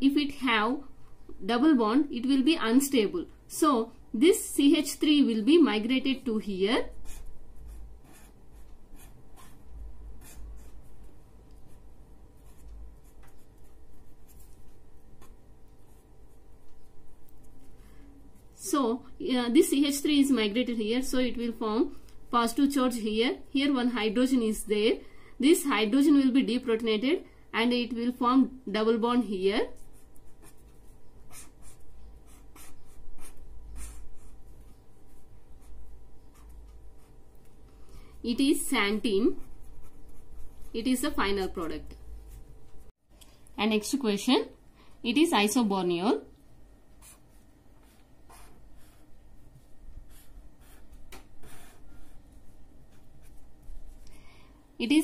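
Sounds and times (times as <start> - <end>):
steady low hum: 0.0 - 55.0
marker scratching on paper: 6.3 - 17.8, 29.6 - 37.2, 38.7 - 42.4, 46.9 - 54.0.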